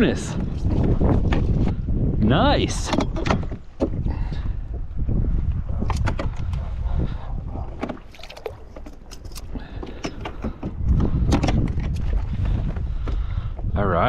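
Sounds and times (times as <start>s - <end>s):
wind rumble on microphone: 0.0s - 14.0s
clicks and knocks of handling fish: 5.8s - 6.7s, 7.7s - 13.2s.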